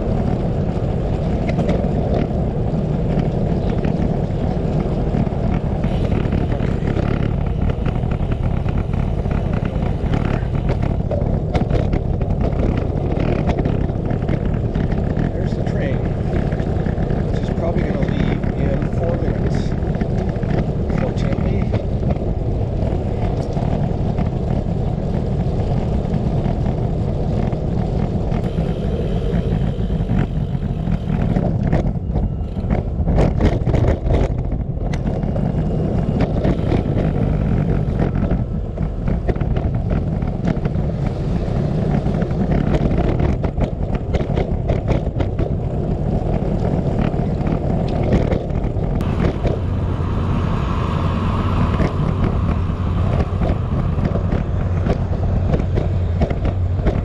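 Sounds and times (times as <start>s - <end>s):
wind buffeting microphone: 0.0s - 57.0s
sharp clicks and knocks: 1.3s - 2.4s, 51.6s - 57.0s.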